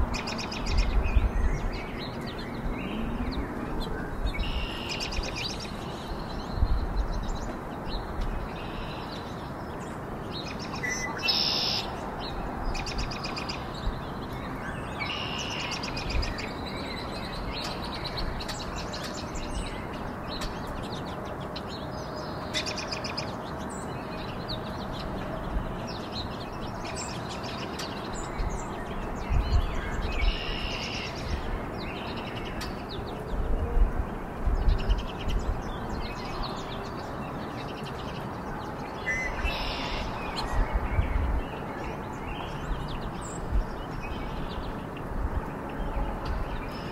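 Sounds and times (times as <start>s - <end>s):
songbirds chirping: 0.0s - 46.9s.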